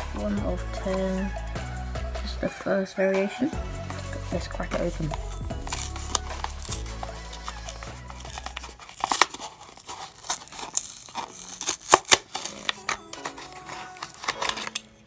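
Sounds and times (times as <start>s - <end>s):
plastic packaging crinkling and tearing: 4.8s - 15.0s.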